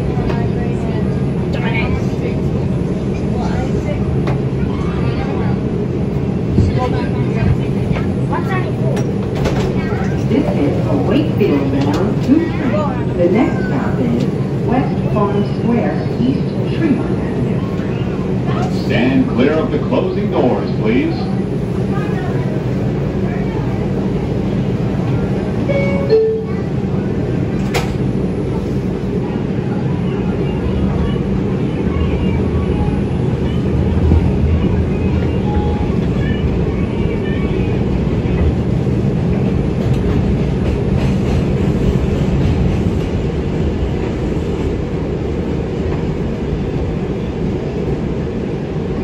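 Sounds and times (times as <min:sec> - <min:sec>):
train doors shutting: 0:08.8 - 0:12.7, 0:24.7 - 0:28.9.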